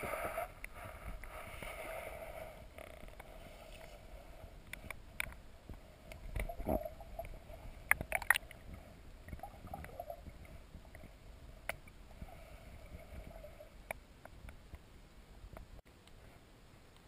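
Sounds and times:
low underwater rumble: 0:02.5 - 0:15.8
sharp underwater clicks: 0:04.6 - 0:08.7, 0:10.9 - 0:12.0.

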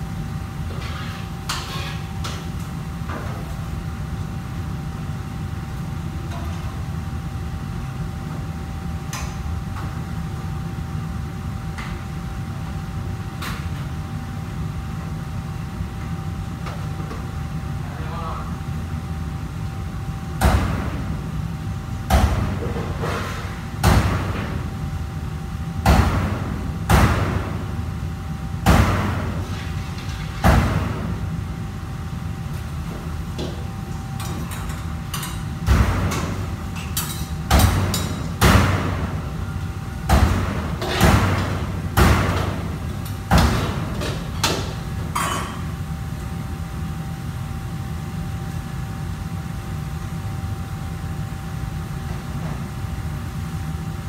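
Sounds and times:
sharp kitchen whacks: 0:25.8 - 0:27.5, 0:28.6 - 0:29.4, 0:37.5 - 0:39.2
kitchen extraction rumble: 0:33.6 - 0:46.0.

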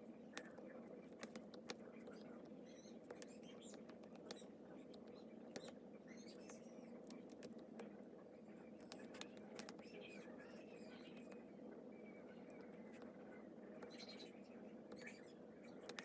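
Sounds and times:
low steady hum: 0:00.0 - 0:16.0
stylus tapping on glass screen: 0:03.0 - 0:05.8.

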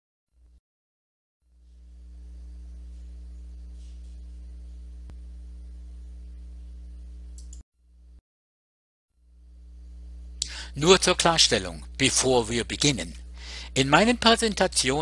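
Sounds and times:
electrical mains hum: 0:01.5 - 0:08.2, 0:09.2 - 0:15.0
faint click: 0:07.4 - 0:07.6.

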